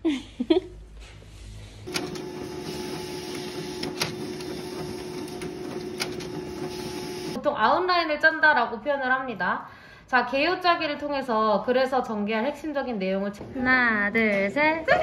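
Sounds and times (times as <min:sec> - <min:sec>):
printer clicking: 0:01.9 - 0:07.4
printer humming: 0:01.9 - 0:07.4.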